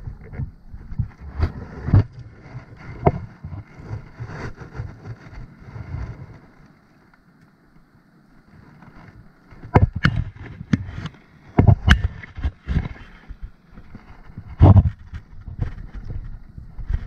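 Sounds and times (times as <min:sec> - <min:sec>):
wind rumble on microphone: 0:00.0 - 0:06.7, 0:08.4 - 0:17.0
knocks and rustling handling fish: 0:08.8 - 0:17.0.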